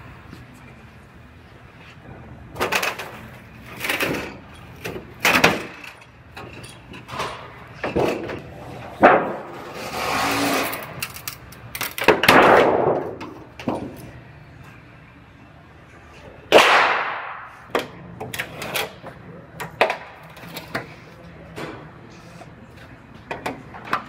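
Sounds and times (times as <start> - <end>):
metal scraping: 9.3 - 11.1.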